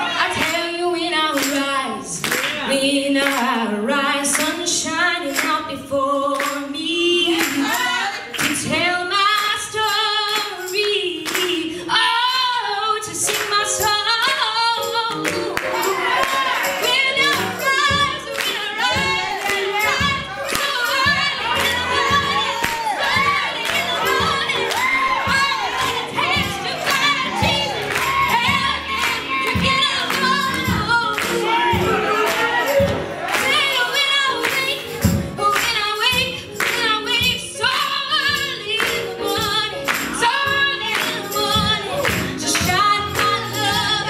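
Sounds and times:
congregation clapping in rhythm: 0:00.0 - 0:00.7, 0:01.3 - 0:03.6, 0:06.3 - 0:06.7, 0:07.3 - 0:08.8, 0:10.3 - 0:11.8, 0:13.2 - 0:13.7, 0:14.3 - 0:37.8, 0:38.8 - 0:44.0
woman singing gospel into microphone: 0:00.0 - 0:44.0
voices singing along: 0:15.5 - 0:34.6.

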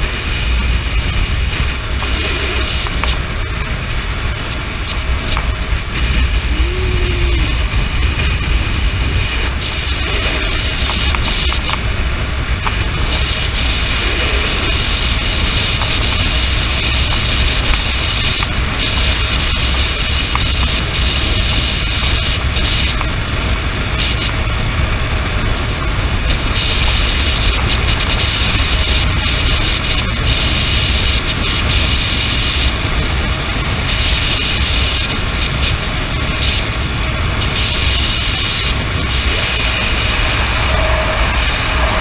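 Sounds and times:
motorcycle engine and tyres drone: 0:00.0 - 0:42.0
wind buffeting microphone: 0:00.0 - 0:42.0
high hiss: 0:37.6 - 0:42.0.

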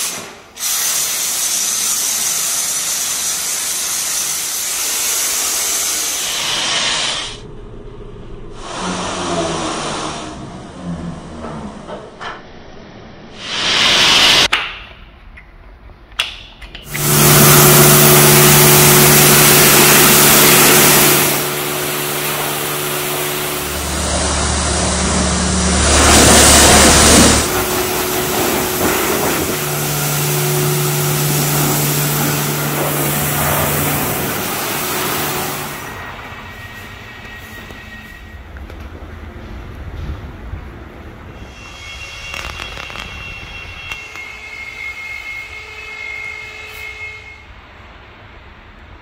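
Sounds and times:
pressure washer spraying water: 0:00.0 - 0:07.4, 0:16.9 - 0:36.0.

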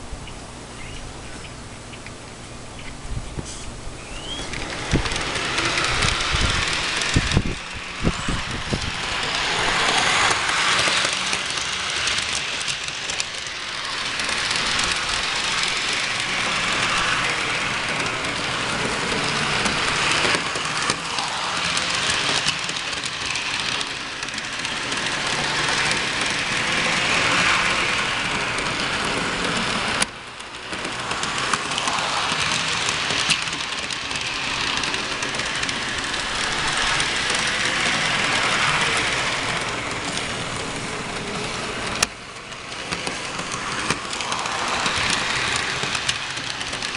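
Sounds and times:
toy locomotive motor: 0:04.1 - 0:46.9
toy train wheels clattering on rails: 0:04.1 - 0:46.9.

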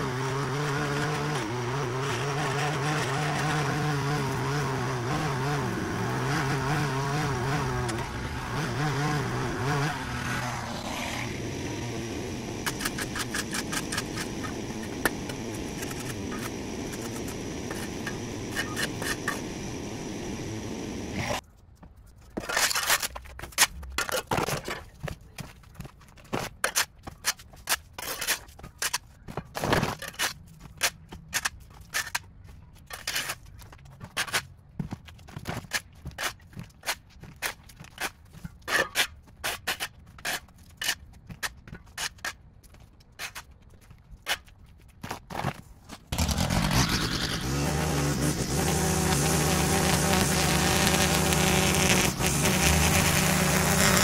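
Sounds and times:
small engine running: 0:00.0 - 0:21.4, 0:46.2 - 0:54.0
hand tool scraping hard surface: 0:12.6 - 0:19.7, 0:26.3 - 0:32.2, 0:35.5 - 0:42.4.

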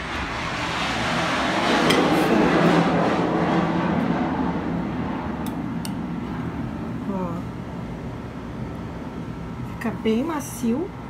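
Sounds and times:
broad rushing noise: 0:00.0 - 0:09.7.

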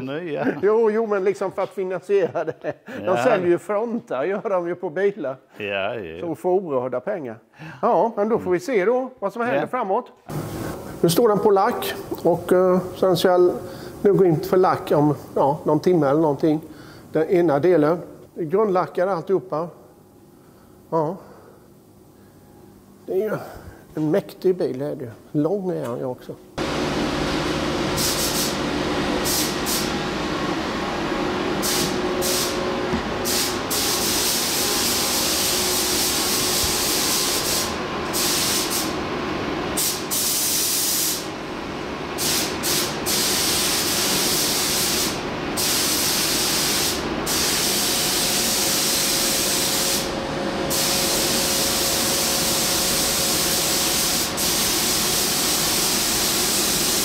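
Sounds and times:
steady hum: 0:26.1 - 0:40.2, 0:47.0 - 0:55.5
spray gun hissing: 0:27.8 - 0:30.0, 0:31.6 - 0:39.0, 0:39.8 - 0:41.3, 0:42.2 - 0:57.0.

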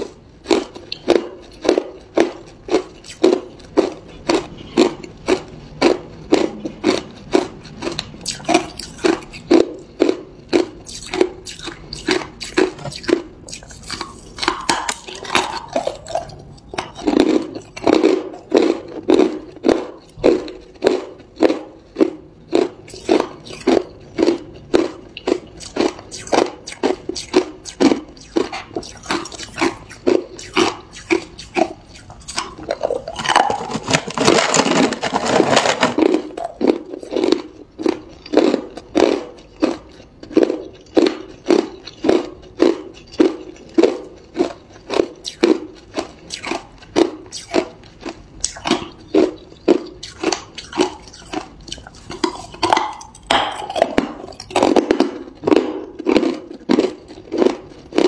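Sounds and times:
ice crunching between teeth: 0:00.0 - 0:58.0.

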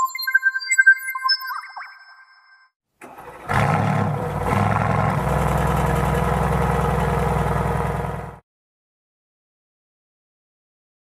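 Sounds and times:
car engine starting and idling: 0:03.0 - 0:08.4.

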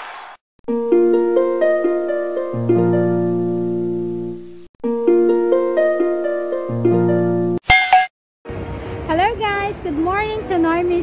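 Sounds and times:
plucked-string melody: 0:00.7 - 0:07.6.

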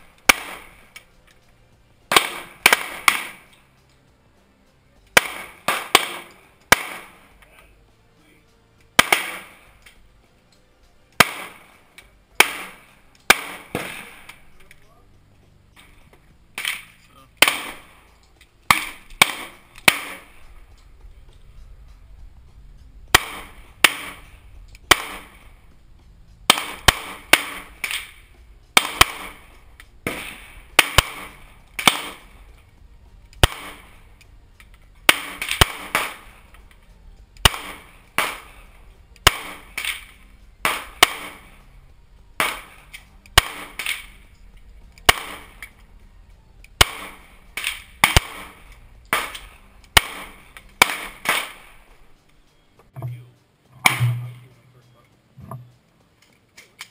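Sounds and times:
pistol shots with echo: 0:00.2 - 0:01.0, 0:02.1 - 0:03.5, 0:05.2 - 0:07.4, 0:09.0 - 0:09.8, 0:11.2 - 0:14.5, 0:16.6 - 0:18.0, 0:18.7 - 0:20.5, 0:23.1 - 0:25.6, 0:26.5 - 0:32.6, 0:33.4 - 0:34.1, 0:35.0 - 0:36.7, 0:37.4 - 0:41.7, 0:42.4 - 0:44.4, 0:45.0 - 0:45.8, 0:46.7 - 0:51.9.

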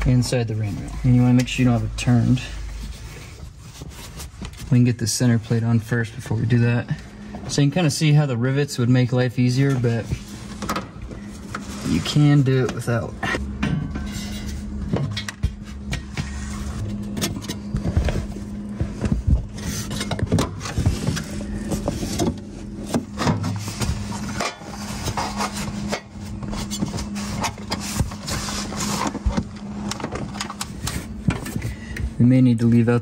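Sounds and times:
steady low hum: 0:00.0 - 0:33.0
fabric rubbing and scraping: 0:00.1 - 0:05.7, 0:11.2 - 0:12.6, 0:20.6 - 0:29.4.

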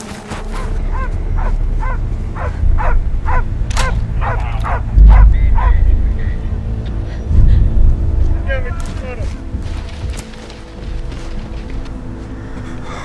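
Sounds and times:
dog barking: 0:00.5 - 0:05.8
low rumble and deep boom: 0:01.1 - 0:09.7.

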